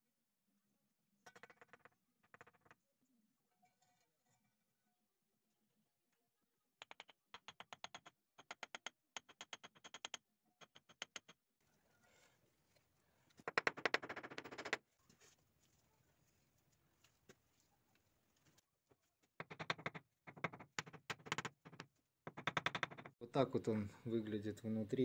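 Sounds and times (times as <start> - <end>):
bricks tapping into mortar: 6.8 - 11.4, 13.4 - 14.8, 19.3 - 23.2.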